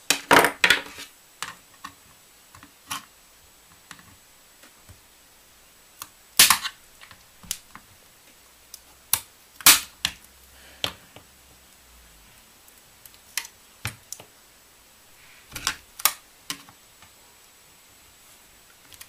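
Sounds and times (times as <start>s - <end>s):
plastic casing snapping and cracking: 6.0s - 6.8s.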